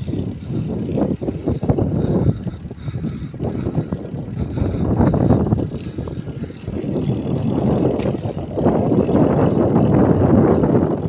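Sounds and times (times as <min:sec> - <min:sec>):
bike rolling on concrete: 0:00.0 - 0:11.0
wind buffeting microphone: 0:00.0 - 0:11.0.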